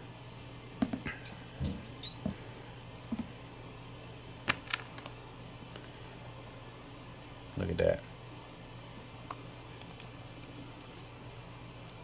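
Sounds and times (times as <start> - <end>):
mouse squeaking: 1.1 - 2.3, 6.8 - 7.1, 8.4 - 8.7, 9.3 - 9.5.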